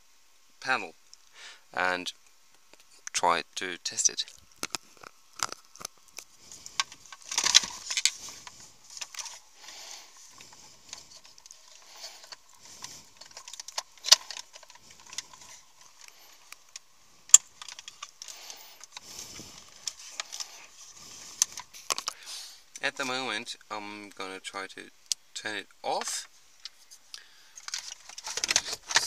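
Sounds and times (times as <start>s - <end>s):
wiring and trim rustling: 4.2s - 23.3s, 25.9s - 29.0s
plastic clicks: 4.3s - 9.4s, 10.4s - 20.6s, 21.4s - 22.2s, 26.0s - 29.0s.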